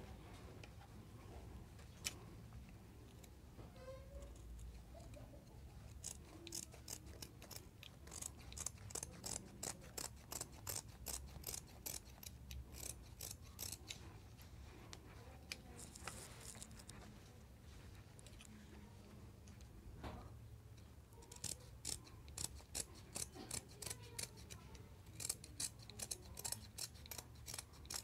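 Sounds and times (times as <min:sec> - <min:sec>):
scissors snipping fabric: 0:05.8 - 0:14.0, 0:21.2 - 0:28.0.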